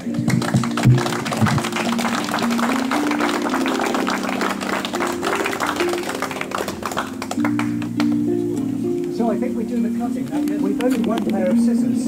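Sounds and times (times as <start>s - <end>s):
small crowd applauding: 0.0s - 8.3s
slow background music: 0.0s - 12.0s.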